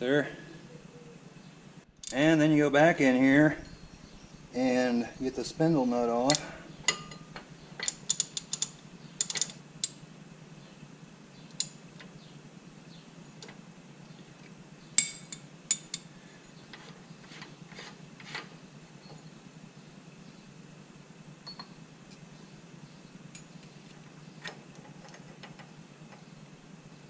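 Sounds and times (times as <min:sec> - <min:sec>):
ratchet clicking: 0:07.8 - 0:10.0.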